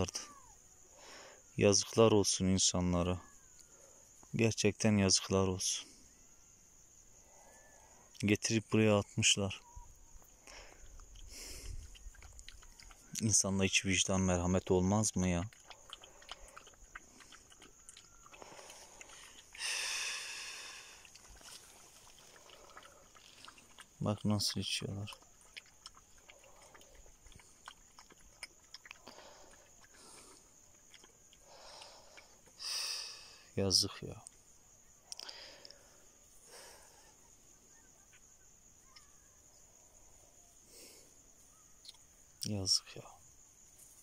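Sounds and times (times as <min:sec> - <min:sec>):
crickets chirring: 0:00.0 - 0:44.0
faint ticks: 0:10.2 - 0:13.4, 0:15.0 - 0:19.6, 0:35.0 - 0:35.9
puppies lapping water: 0:10.5 - 0:19.6, 0:20.9 - 0:32.6.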